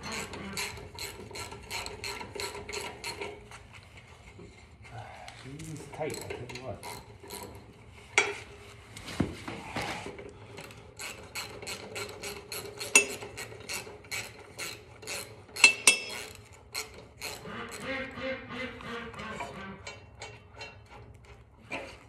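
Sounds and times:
metal clinks of tool on blade: 15.6s - 16.2s.

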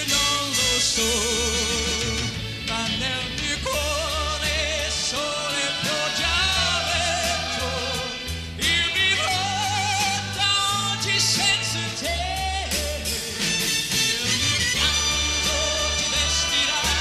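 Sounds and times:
bass line: 0.0s - 17.0s
drums: 0.0s - 17.0s
man singing a ballad: 0.0s - 17.0s
orchestra playing: 3.8s - 11.2s, 13.3s - 17.0s.

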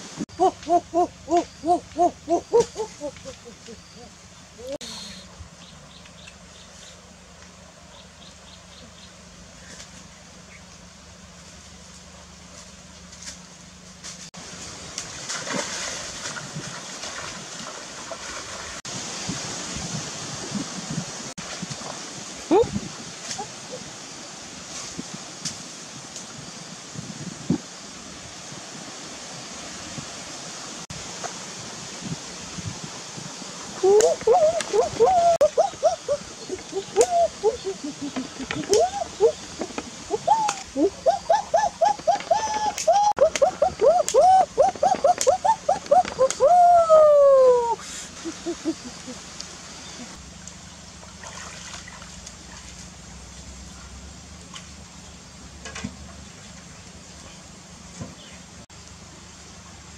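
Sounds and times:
hen cackling: 0.3s - 5.2s, 33.8s - 49.3s
splashes of wading: 14.5s - 18.8s, 51.0s - 53.0s.

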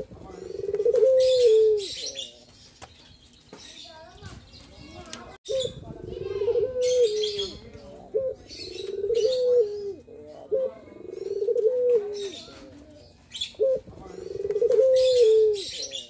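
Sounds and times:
dove cooing with trill: 0.0s - 2.3s, 5.5s - 16.0s.

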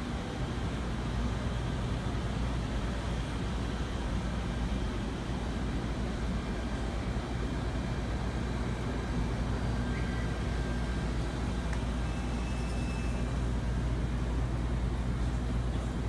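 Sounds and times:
ventilation fans rumbling: 0.0s - 16.0s
faint thin high tones: 12.0s - 13.3s.

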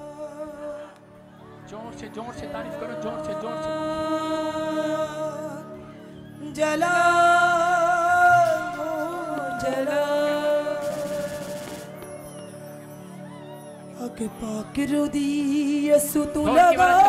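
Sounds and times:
person singing long notes: 0.0s - 12.2s.

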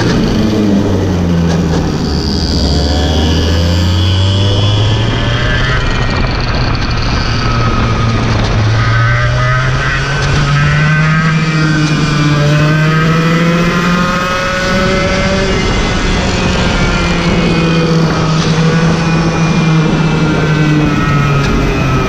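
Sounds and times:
go-kart engine revving: 0.0s - 22.0s.

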